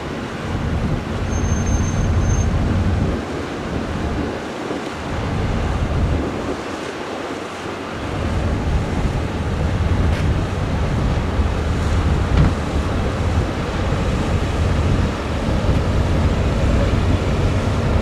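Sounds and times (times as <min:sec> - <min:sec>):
ferry engine rumble: 0:00.0 - 0:18.0
harbour water noise: 0:00.0 - 0:18.0
wind gusting on microphone: 0:00.0 - 0:18.0.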